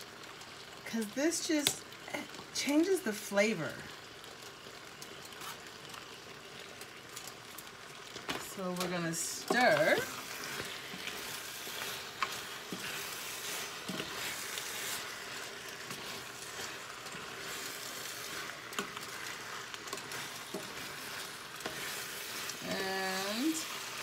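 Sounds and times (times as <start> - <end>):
pasta sizzling in a pan: 0.0 - 24.0
spoon scraping and tapping a pan: 18.8 - 21.0.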